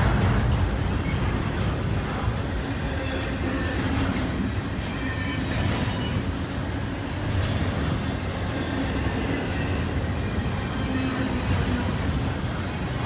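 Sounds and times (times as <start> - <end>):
freight train rolling past: 0.0 - 13.0.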